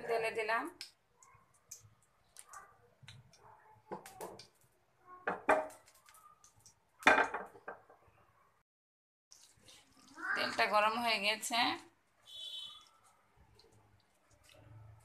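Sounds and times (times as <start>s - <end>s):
kitchenware knocking and clinking: 5.2s - 5.8s, 7.0s - 8.0s.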